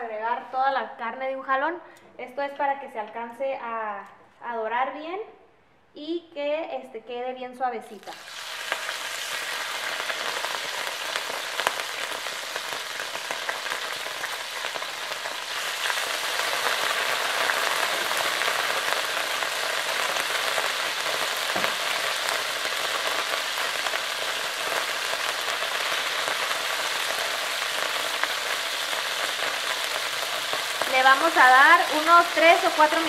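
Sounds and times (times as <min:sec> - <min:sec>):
meat sizzling in hot oil: 0:08.0 - 0:33.0.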